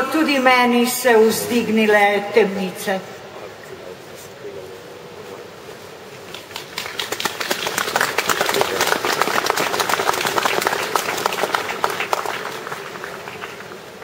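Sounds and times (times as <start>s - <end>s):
audience applauding: 6.3s - 14.0s.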